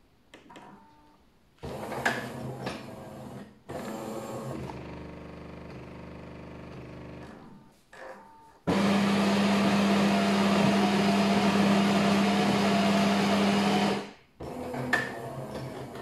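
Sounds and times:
espresso machine buzzing: 3.7 - 7.4, 8.7 - 15.8.

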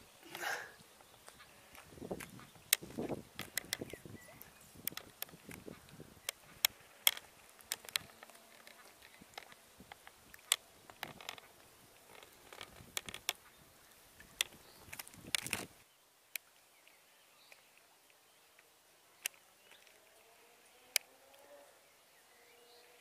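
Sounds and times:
lakeside outdoor ambience: 0.0 - 23.0
sharp clicks and ticks: 2.2 - 4.0, 4.8 - 11.4.

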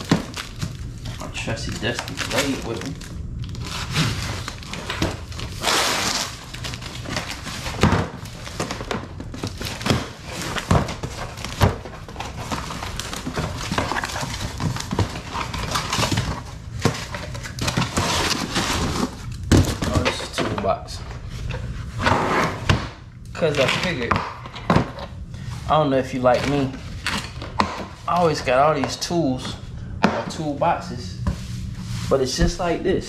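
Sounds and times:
cardboard tearing and scraping: 0.0 - 20.3, 26.0 - 28.6.

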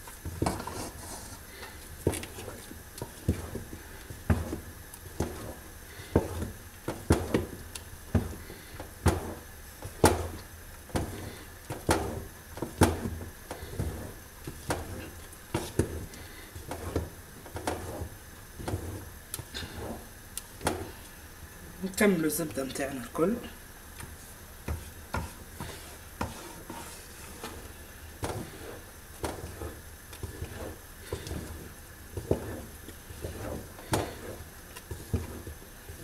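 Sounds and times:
spoon scraping thick paste: 0.3 - 6.5, 11.0 - 20.1, 24.7 - 36.0.

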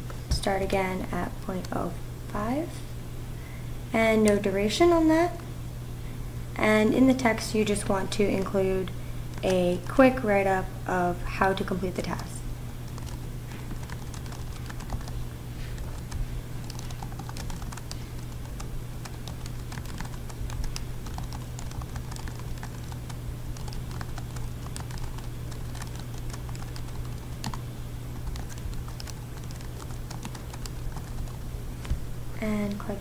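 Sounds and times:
constant low hum: 0.0 - 33.0
computer keyboard typing: 12.9 - 27.6, 28.2 - 31.4.

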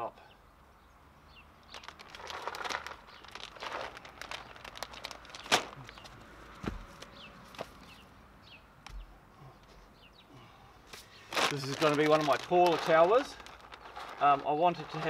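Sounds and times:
plastic bag crinkling: 1.6 - 6.3, 11.0 - 15.0
wooden log thumping: 6.6 - 6.9.

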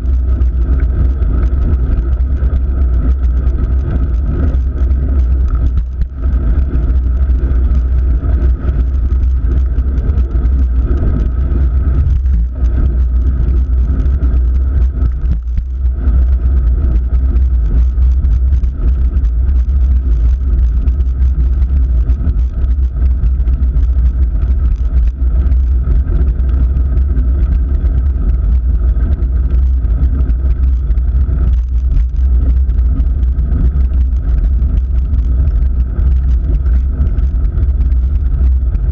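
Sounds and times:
wind and road rumble: 0.0 - 38.9.

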